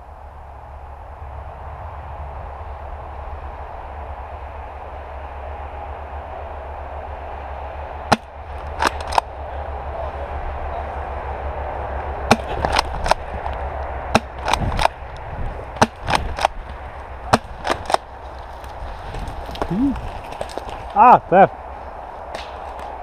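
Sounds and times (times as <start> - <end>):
steady rush of noise: 0.0 - 23.0
airsoft guns popping: 8.1 - 9.3, 12.3 - 15.1, 15.8 - 18.1.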